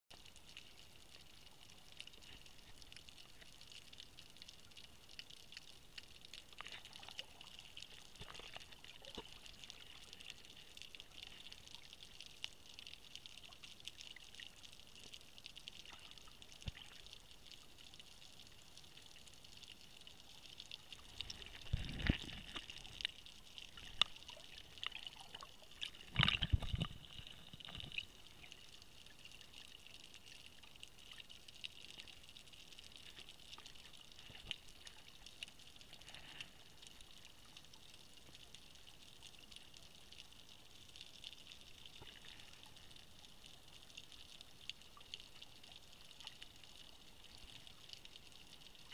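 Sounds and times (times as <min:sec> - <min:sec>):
water bubbling and churning: 0:00.1 - 0:17.8, 0:19.7 - 0:37.6
underwater crackling hiss: 0:00.2 - 0:48.9.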